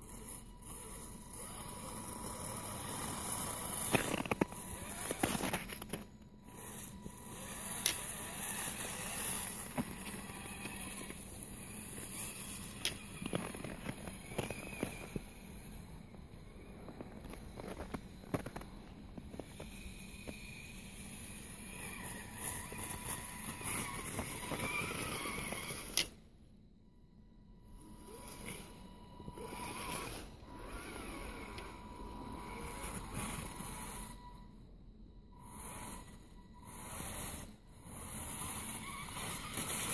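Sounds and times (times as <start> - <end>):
small electric motor whining: 0.0 - 26.4, 27.3 - 39.9
tyres crunching on snow: 0.8 - 20.4.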